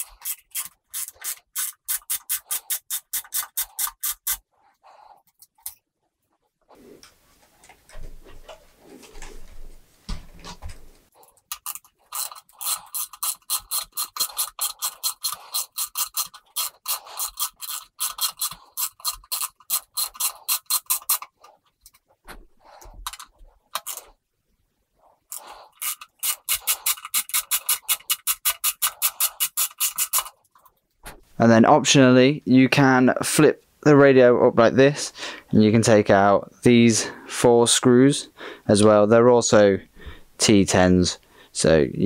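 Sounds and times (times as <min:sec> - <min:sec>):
socket ratchet clicking: 0:25.8 - 0:30.3.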